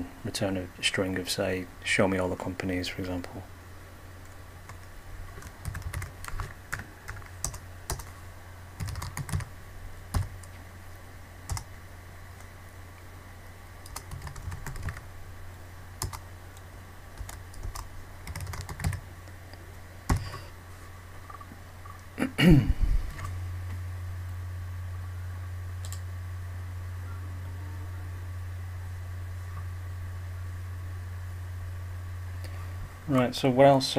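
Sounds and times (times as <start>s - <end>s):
steady low hum: 0.0s - 33.9s
keyboard typing: 4.7s - 8.2s, 8.8s - 9.5s, 10.1s - 10.5s, 11.5s - 11.7s, 13.8s - 15.0s, 16.0s - 16.2s, 17.2s - 19.0s.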